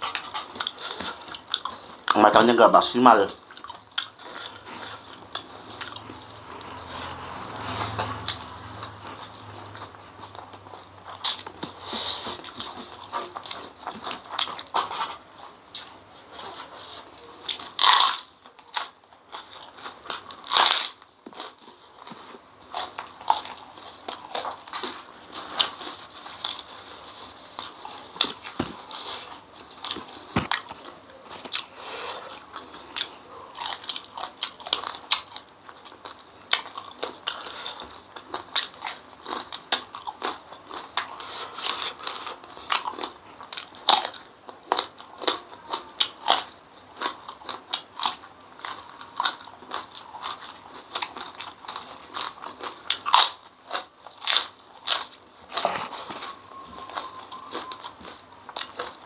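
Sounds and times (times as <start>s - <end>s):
chewing with small clicks: 0.0s - 2.2s, 3.2s - 7.2s, 27.5s - 59.0s
crunching bites: 17.5s - 26.7s.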